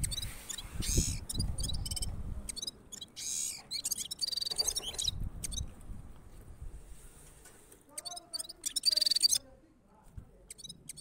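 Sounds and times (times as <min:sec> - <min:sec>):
songbird chirping and trilling: 0:00.0 - 0:05.7, 0:07.9 - 0:09.6, 0:10.4 - 0:11.0.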